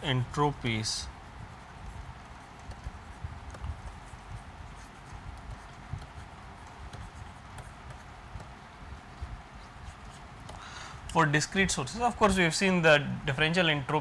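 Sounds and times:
stylus tapping on a tablet: 1.8s - 8.6s.

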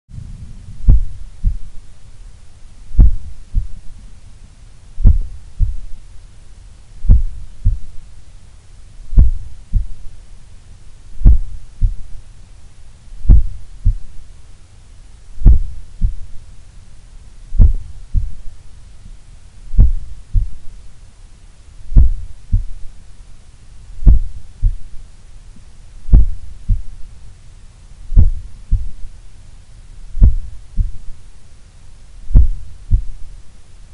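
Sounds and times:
heartbeat through stethoscope: 0.1s - 1.9s, 2.9s - 4.1s, 5.0s - 6.0s, 7.0s - 8.1s, 9.1s - 10.2s, 11.2s - 12.2s, 13.2s - 14.2s, 15.4s - 16.4s, 17.5s - 18.6s, 19.7s - 20.8s, 21.9s - 23.0s, 24.0s - 25.0s, 26.0s - 27.1s, 28.1s - 29.1s, 30.1s - 31.2s, 32.3s - 33.3s.

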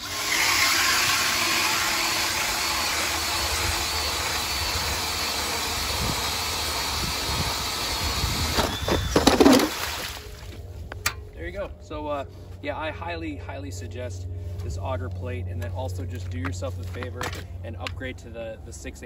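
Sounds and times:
drill auger cutting through ice: 0.0s - 10.1s.

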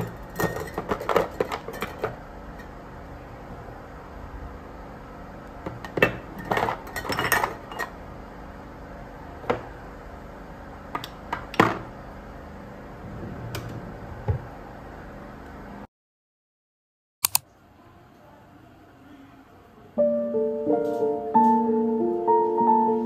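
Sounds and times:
hard objects clinking and knocking: 0.0s - 2.2s.

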